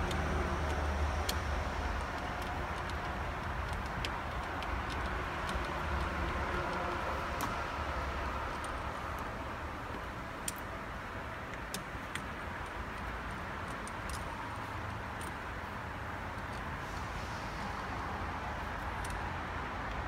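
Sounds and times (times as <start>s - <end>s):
hand driver clicks: 0.0s - 7.6s, 8.4s - 16.7s, 18.7s - 19.2s.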